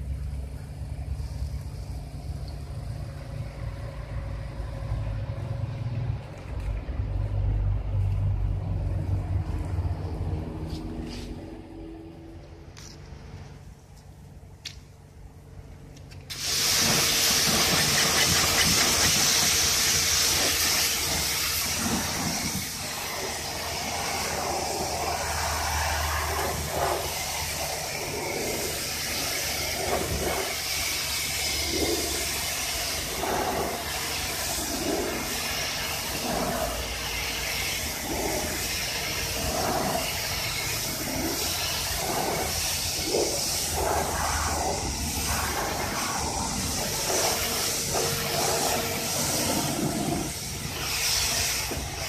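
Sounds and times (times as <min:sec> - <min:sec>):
pressure washer spraying water: 0:16.3 - 0:52.0
steady hum: 0:16.8 - 0:52.0.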